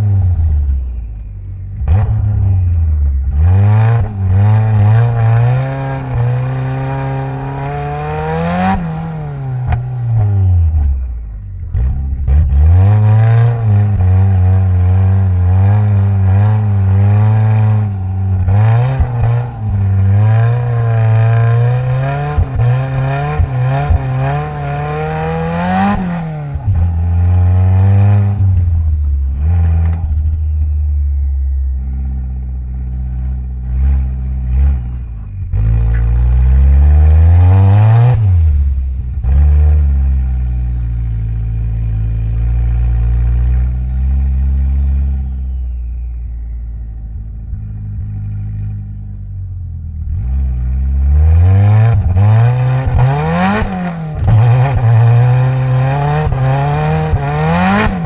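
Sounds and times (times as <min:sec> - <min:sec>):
car engine revving: 0:00.0 - 0:49.3, 0:50.0 - 0:58.0
high turbo whine: 0:00.0 - 0:58.0.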